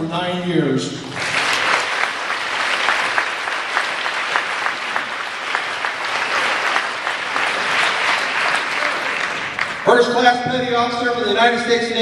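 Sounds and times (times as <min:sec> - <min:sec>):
crowd applauding: 0:01.0 - 0:10.4.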